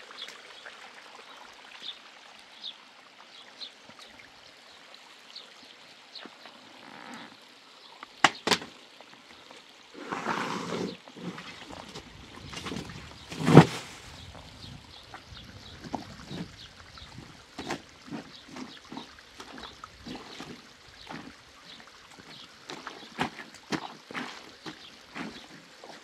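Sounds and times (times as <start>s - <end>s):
water sloshing and splashing: 8.1s - 26.0s.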